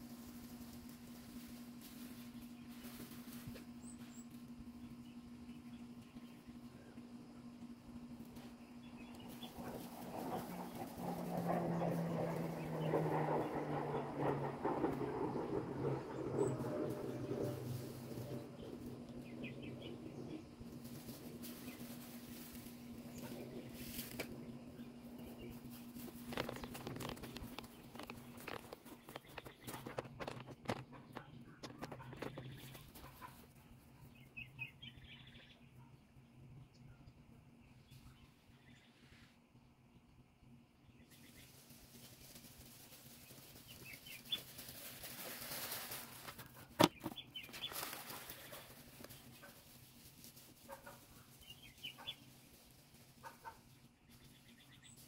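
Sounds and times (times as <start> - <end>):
footsteps on grass: 0.0 - 4.2
low steady hum: 0.0 - 55.0
spreader flinging granules: 41.5 - 51.8.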